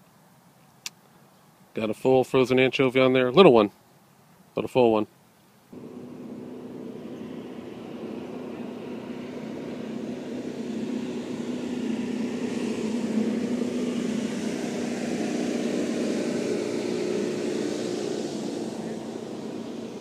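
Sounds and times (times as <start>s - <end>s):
motorboat engine droning: 5.7s - 20.0s.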